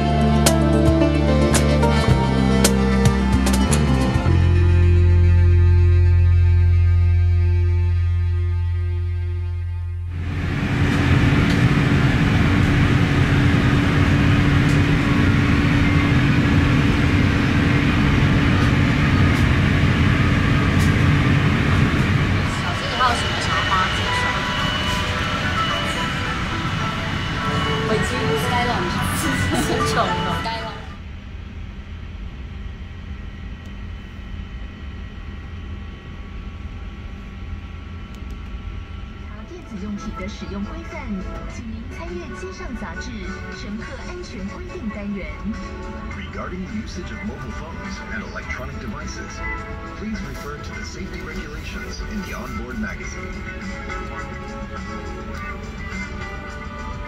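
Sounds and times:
low air-conditioning hum: 10.1s - 24.6s, 26.1s - 57.0s
ventilation air rushing: 10.1s - 42.8s.

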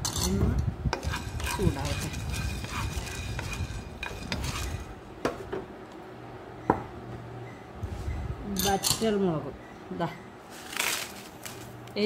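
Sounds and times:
peppercorns rattling in a pan: 1.1s - 4.8s.

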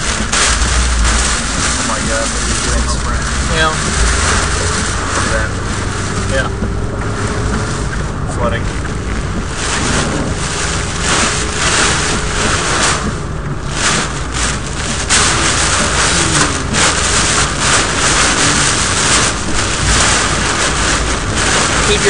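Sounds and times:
heavy rain and wind on car: 0.0s - 22.0s
road noise: 0.0s - 22.0s.

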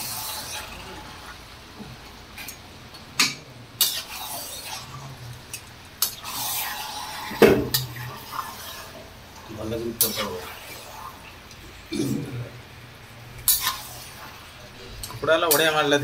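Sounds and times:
metal spatula scraping meat: 3.8s - 5.1s, 6.0s - 9.0s, 13.5s - 14.5s.

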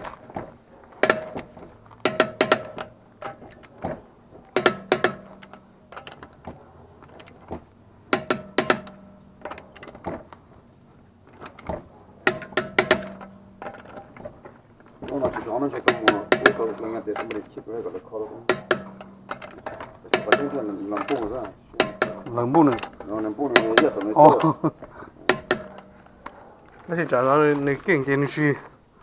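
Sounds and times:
torque wrench ratcheting clicks: 15.9s - 17.4s.

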